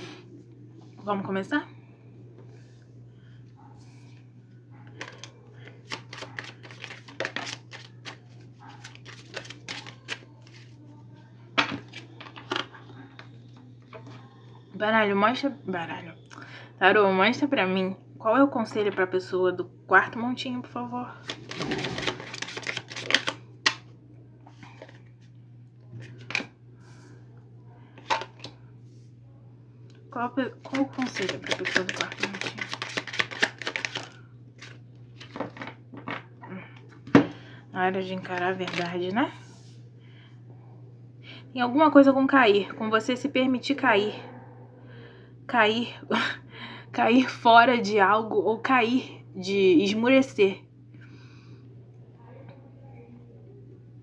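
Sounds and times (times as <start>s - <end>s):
steady low hum: 0.0s - 54.0s
cards being shuffled: 5.0s - 10.8s, 21.2s - 23.8s, 30.6s - 35.7s.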